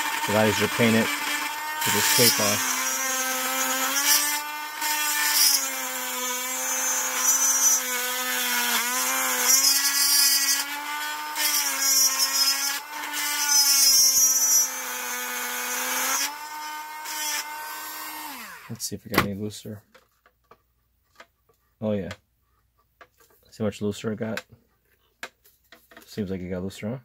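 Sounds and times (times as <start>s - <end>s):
disc grinding metal: 0.0s - 4.8s
rotary tool high whine: 0.0s - 18.8s.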